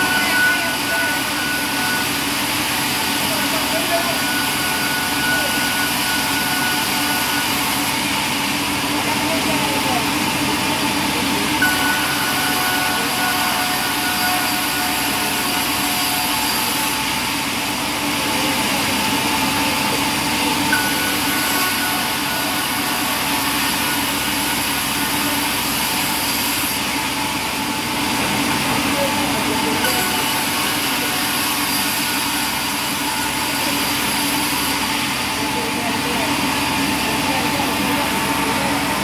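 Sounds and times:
thin high whine: 0.0 - 9.9, 10.9 - 17.7, 20.6 - 27.5, 28.2 - 39.0
band saw humming: 0.0 - 39.0.

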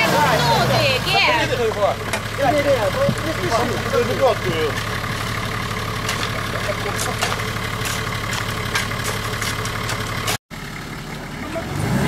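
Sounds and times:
car engine idling: 0.0 - 12.0
digging tools chopping stony soil: 6.0 - 10.4.

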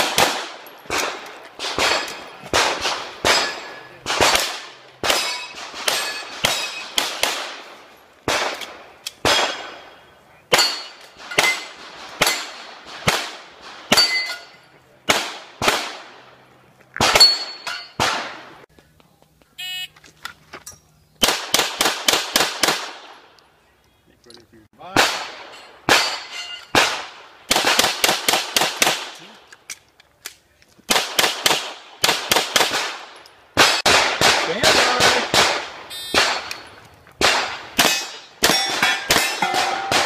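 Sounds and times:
pistol shots with echo: 0.0 - 14.3, 15.1 - 16.2, 17.0 - 18.6, 24.9 - 29.2, 30.9 - 40.0
steel targets clanging: 0.6 - 2.5, 3.2 - 4.4, 5.0 - 7.0, 9.4 - 12.6, 13.9 - 14.8, 17.1 - 18.0, 25.4 - 26.8, 37.8 - 40.0.

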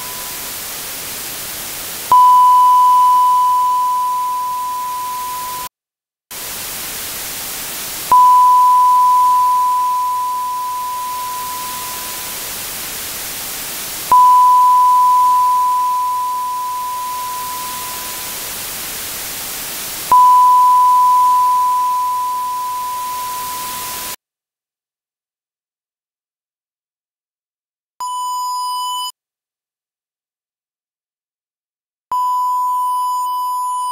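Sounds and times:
sine-wave ping: 0.0 - 0.5, 2.1 - 5.7, 8.1 - 12.4, 14.1 - 18.4, 20.1 - 24.2
treble-heavy hiss: 0.0 - 5.7, 6.3 - 24.2.

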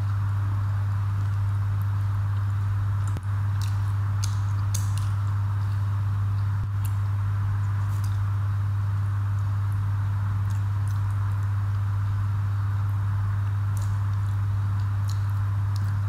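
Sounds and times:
steady low hum: 0.0 - 16.0
soft clicks of eating by hand: 1.2 - 7.0, 7.7 - 8.3, 10.4 - 12.2, 12.8 - 16.0
chewing: 2.4 - 7.0, 13.7 - 16.0.

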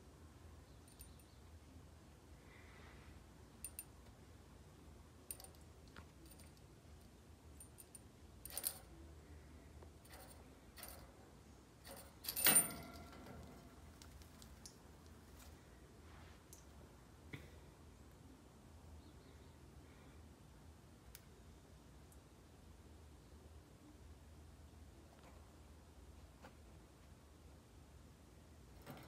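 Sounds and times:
birdcage clicks and clinks: 0.8 - 1.4, 3.6 - 3.9, 5.3 - 6.7, 7.6 - 9.0, 10.0 - 11.2, 11.8 - 14.8, 28.8 - 29.0
metallic rattle: 7.6 - 9.0, 10.0 - 14.7.

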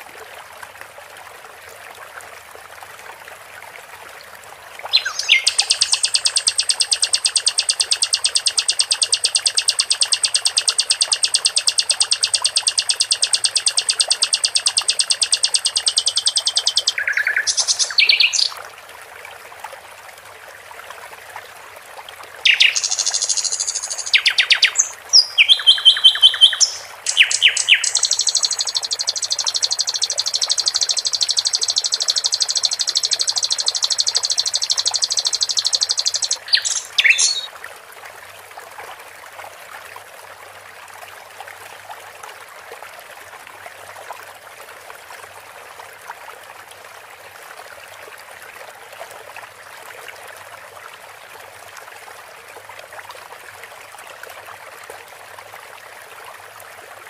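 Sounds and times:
running water trickling: 0.0 - 56.8
nightingale song with fast trill: 4.9 - 18.5, 22.5 - 37.5.

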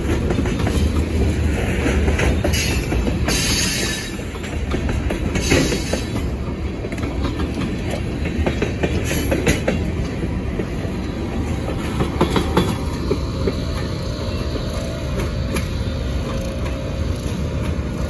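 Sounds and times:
freight train rolling past: 0.0 - 18.0
wheels clacking on rails: 0.0 - 18.0.

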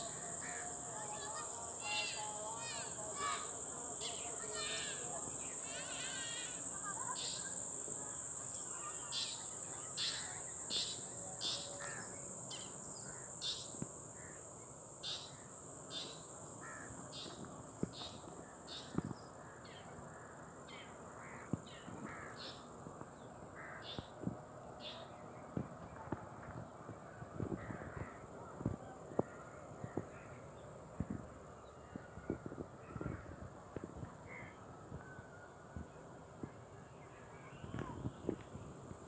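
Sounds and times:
insects trilling: 0.0 - 24.2.

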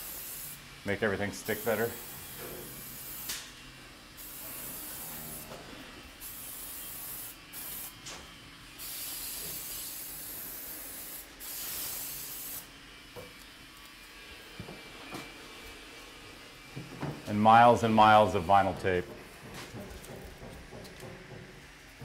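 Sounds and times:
aerosol can hissing: 0.0 - 0.6, 1.5 - 3.5, 4.2 - 5.1, 6.2 - 8.0, 8.8 - 12.7.

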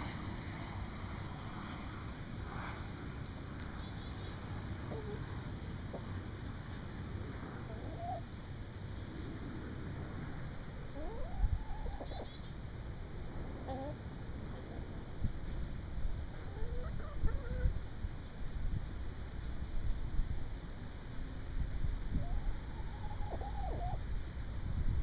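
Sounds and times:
hens clucking: 22.2 - 24.0.

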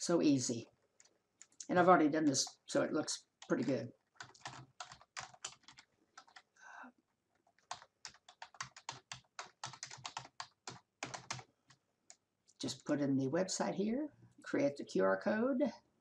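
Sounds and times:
computer keyboard key clicks: 4.2 - 6.4.

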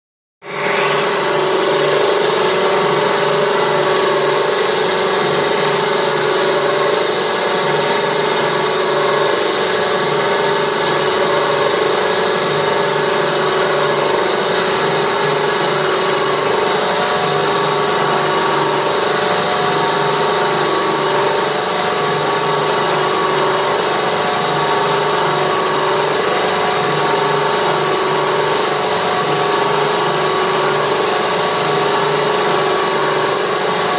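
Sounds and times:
high machine whine: 0.4 - 33.9
mixer machine humming: 0.4 - 33.9.

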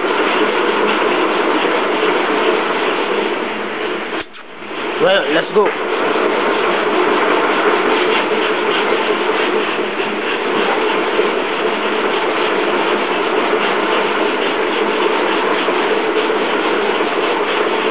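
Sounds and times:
treadmill mechanical drone: 0.0 - 17.9.

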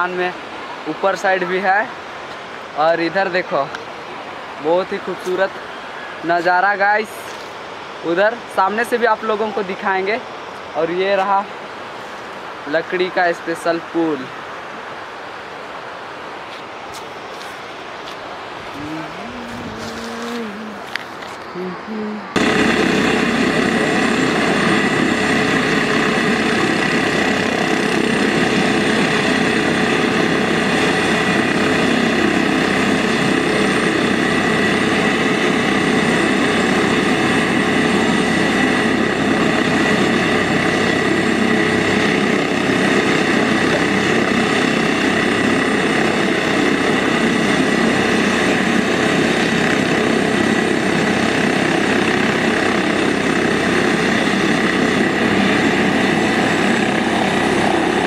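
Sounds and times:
helicopter rotor and turbine: 0.0 - 58.0.

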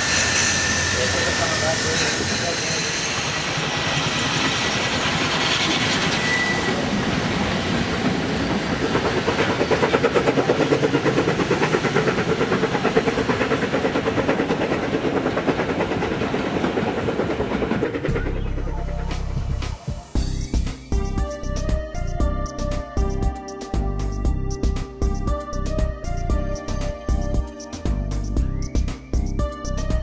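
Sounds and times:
locomotive steam hiss: 0.0 - 7.0
train carriages rolling past: 0.0 - 19.1.

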